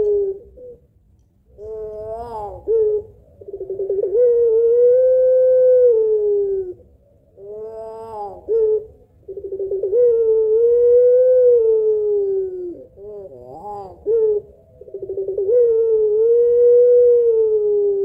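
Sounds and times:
dove cooing: 0:00.0 - 0:18.0.

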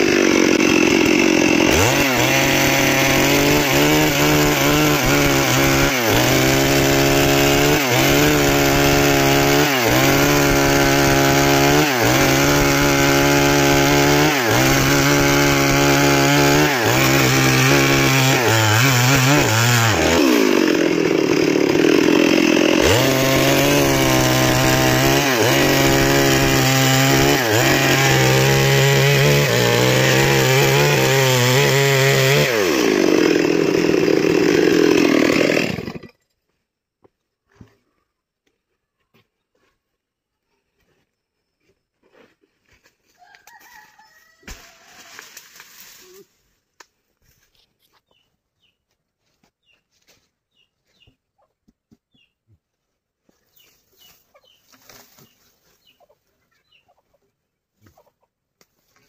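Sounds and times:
chainsaw cutting a log: 0:00.0 - 0:36.2, 0:43.6 - 0:46.2.

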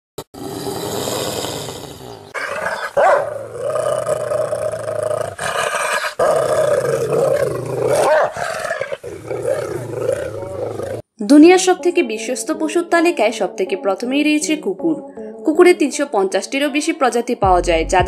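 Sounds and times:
dog growling and snarling: 0:00.4 - 0:11.0.

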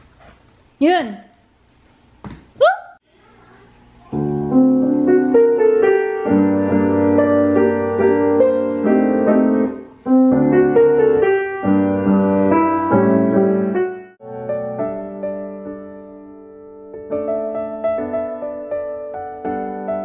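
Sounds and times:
solo piano music: 0:04.0 - 0:20.0.

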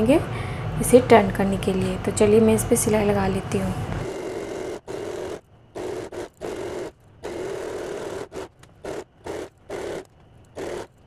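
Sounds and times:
sewing machine stitching: 0:04.0 - 0:11.0.

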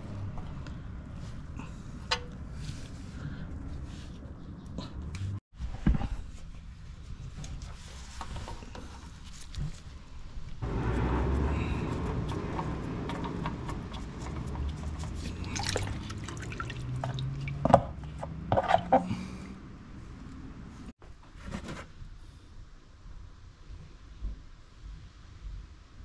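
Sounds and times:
oil trickling and dripping: 0:11.5 - 0:17.8.

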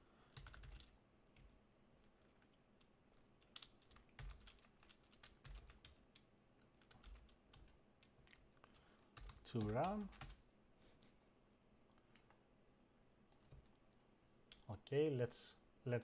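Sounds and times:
typing on computer keyboard: 0:00.3 - 0:01.5, 0:03.4 - 0:10.4, 0:13.3 - 0:13.8.

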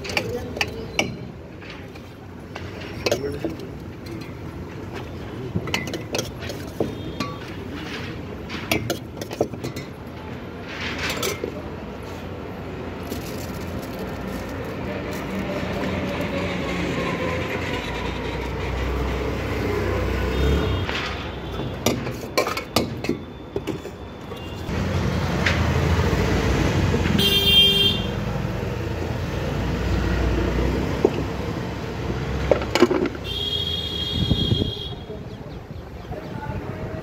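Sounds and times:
rumble of passing vehicles: 0:00.0 - 0:37.0
vehicle horn honking: 0:27.2 - 0:28.2, 0:33.2 - 0:35.1.

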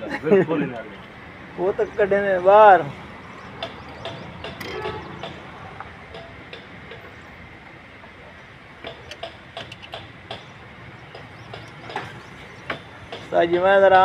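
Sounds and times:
light clicks and taps on engine parts: 0:03.6 - 0:07.2, 0:08.8 - 0:13.7.

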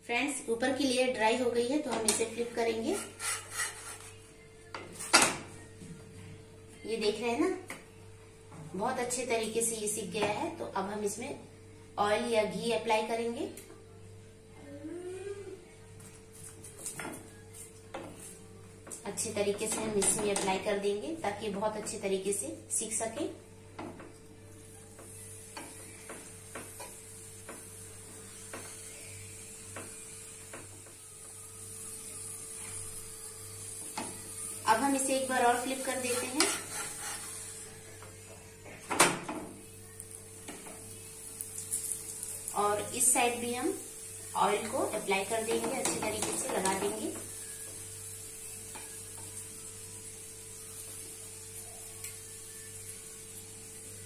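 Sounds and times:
metal spoon scraping on flatbread: 0:02.9 - 0:04.2, 0:36.0 - 0:37.4
faint oil sizzle: 0:22.4 - 0:38.8, 0:39.4 - 0:54.0
light ticks on griddle: 0:52.0 - 0:52.2.

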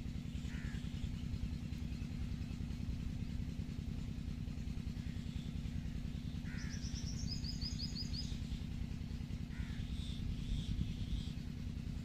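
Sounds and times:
steady low rumble: 0:00.0 - 0:12.0
birds chirping: 0:00.1 - 0:02.8, 0:04.8 - 0:11.6.

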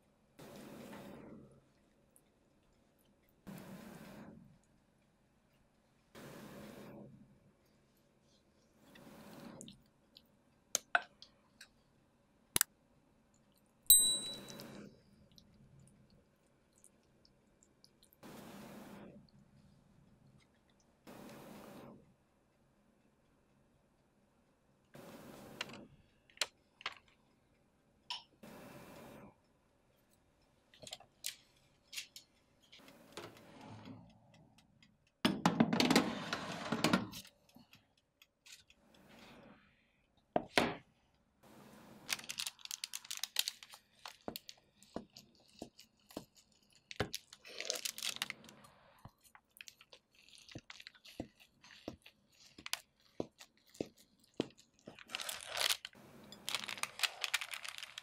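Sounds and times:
kitchen crackling and clicking: 0:49.3 - 0:58.0
knife crunching through crisp pancakes: 0:49.5 - 0:55.9.

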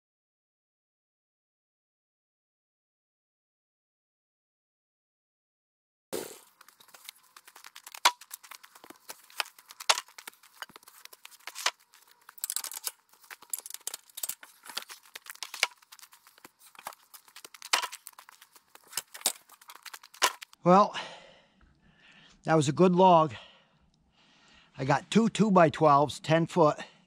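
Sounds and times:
footsteps crunching on frozen ground: 0:06.2 - 0:20.6.

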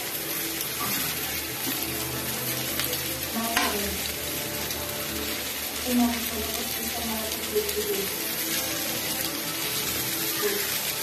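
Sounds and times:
chicken sizzling in a grill pan: 0:00.0 - 0:11.0.

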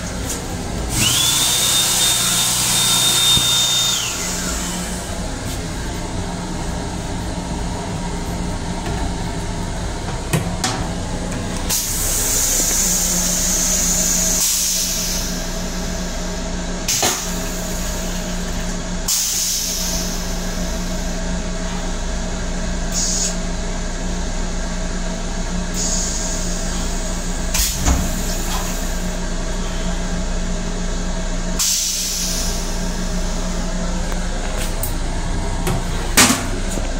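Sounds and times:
railcar hum: 0:00.0 - 0:36.9
toilet hissing spray: 0:11.7 - 0:15.5.

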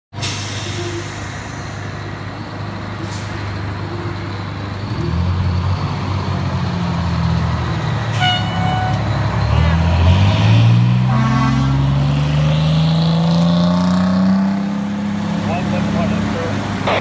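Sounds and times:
air brake hiss: 0:00.2 - 0:02.0
diesel engine running: 0:00.2 - 0:12.1, 0:14.8 - 0:17.0.

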